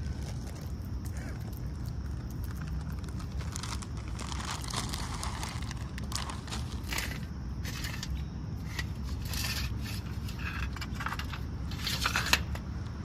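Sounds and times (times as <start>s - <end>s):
low steady rumble: 0.0s - 13.0s
peanuts rattling in a tray: 2.1s - 12.5s.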